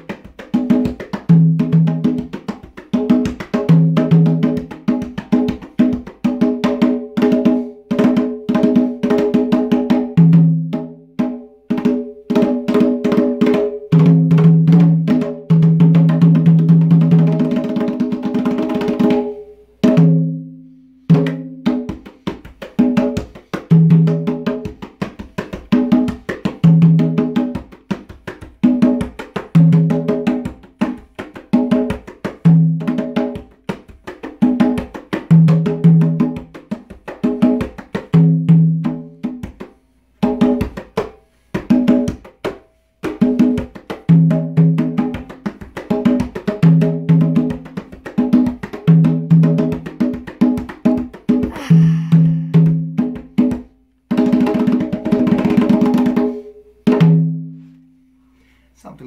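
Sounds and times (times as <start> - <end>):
conga drums played by hand: 0.0 - 57.9
person speaking: 51.5 - 52.7, 58.8 - 59.0.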